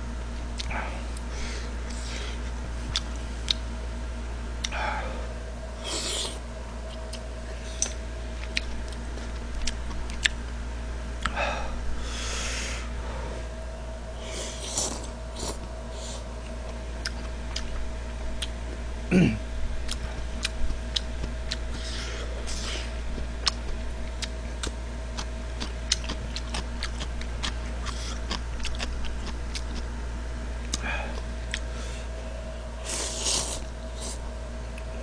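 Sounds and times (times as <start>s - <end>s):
low electrical hum: 0.0s - 35.0s.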